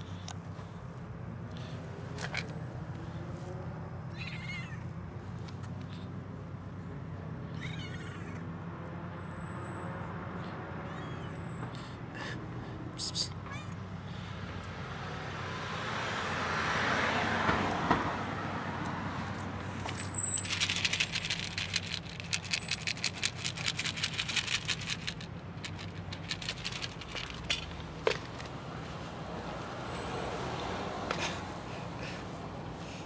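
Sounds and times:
kibble rattling in plastic container: 19.9 - 28.5.

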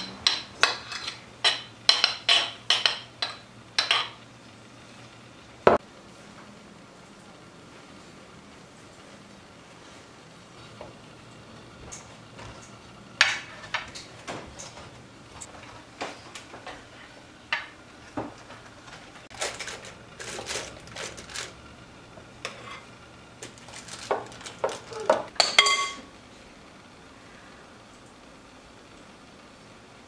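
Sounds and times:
dishes and metal utensils clattering: 0.0 - 4.2, 19.3 - 21.5, 22.4 - 26.1.

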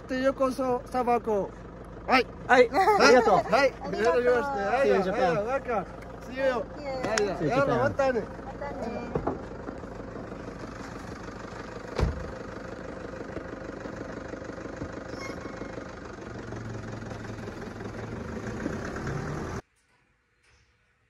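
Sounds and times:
pickup engine idling: 0.0 - 19.6
door shutting thump: 11.9 - 12.3.

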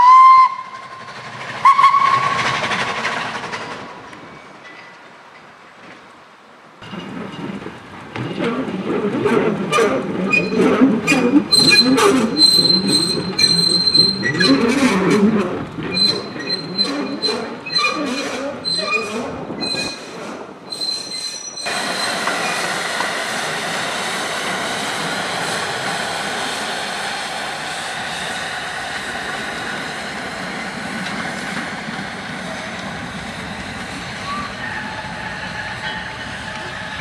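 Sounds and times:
steam locomotive exhaust beats: 0.0 - 4.3, 21.6 - 37.0
train wheels on rail: 0.0 - 37.0.

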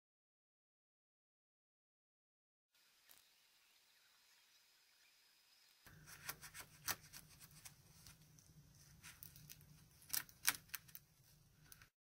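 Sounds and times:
palette knife clicks and crackles: 9.2 - 11.1.

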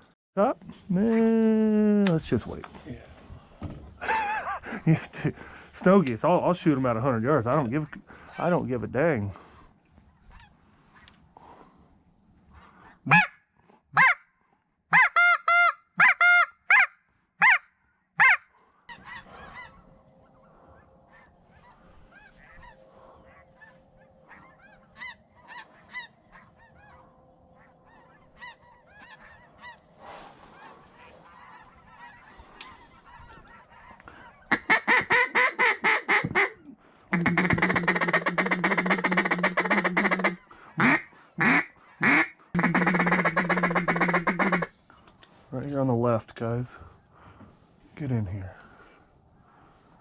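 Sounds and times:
distant flock of geese calling: 9.3 - 14.3, 14.9 - 45.5, 46.7 - 50.0
geese honking: 12.7 - 13.4, 14.9 - 17.6, 18.2 - 44.8.

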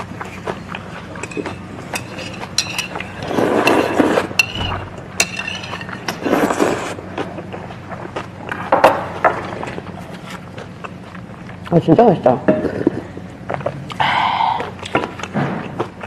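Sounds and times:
slurping noodles: 6.2 - 7.0.

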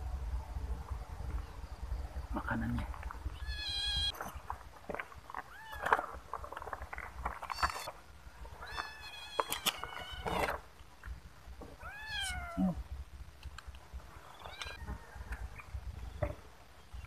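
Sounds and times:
kittens meowing: 3.3 - 4.1, 11.8 - 12.8, 14.3 - 14.8.

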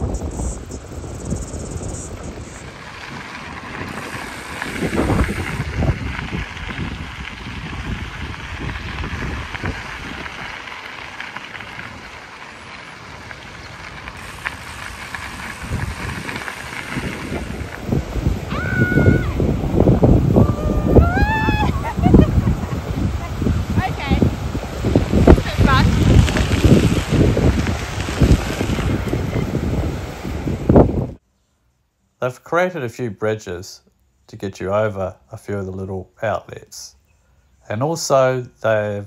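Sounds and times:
wind rushing over microphone: 0.0 - 12.2, 13.0 - 31.2
low rumble of bike ride: 0.0 - 32.4.

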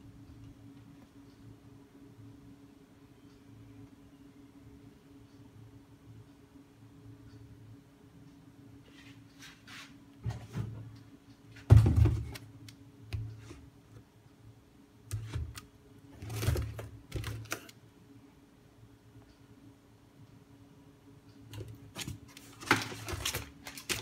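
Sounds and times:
faint steady hum: 0.0 - 24.0
cardboard box and plastic handled: 21.9 - 24.0.

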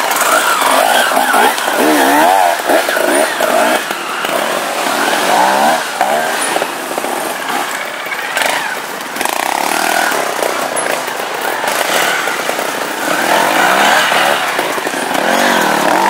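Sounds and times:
motorcycle engines revving: 0.0 - 16.0.

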